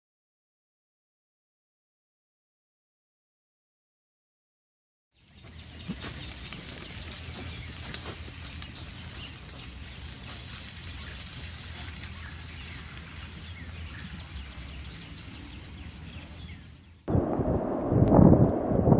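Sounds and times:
wind buffeting microphone: 5.3s - 18.9s.

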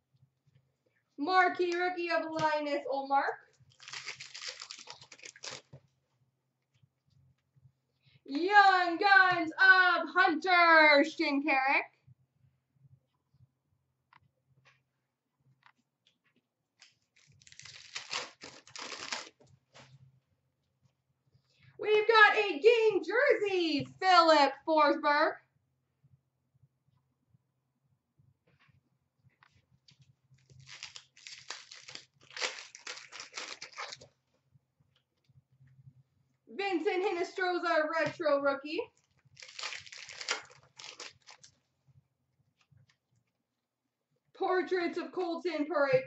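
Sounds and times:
foil pack crinkling and rustling: 3.6s - 5.8s, 16.8s - 19.9s, 30.4s - 34.2s, 39.0s - 41.6s.

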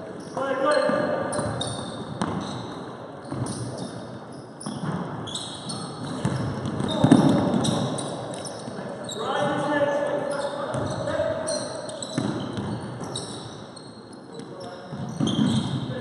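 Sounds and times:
shoes squeaking on court floor: 0.0s - 16.0s
basketball bouncing: 1.4s - 2.5s, 4.6s - 5.2s, 6.0s - 8.0s, 12.1s - 13.2s.

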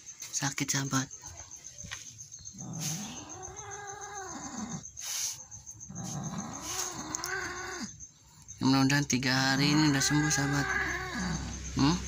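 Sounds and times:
cat crying: 9.6s - 11.5s.

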